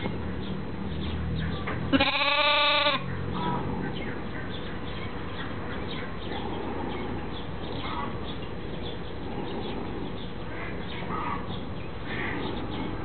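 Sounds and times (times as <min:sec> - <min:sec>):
lamb bleating: 0:01.9 - 0:03.1.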